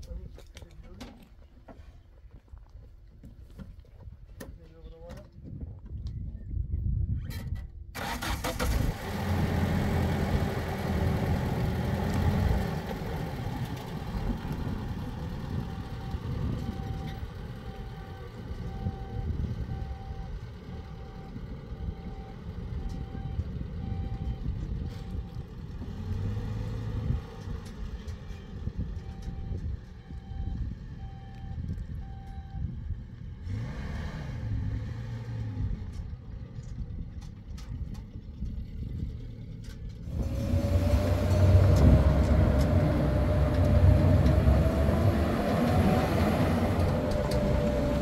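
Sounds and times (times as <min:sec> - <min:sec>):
truck engine running: 0:08.0 - 0:32.2, 0:35.5 - 0:48.0
reversing alarm beeping: 0:15.6 - 0:25.4, 0:29.0 - 0:32.7.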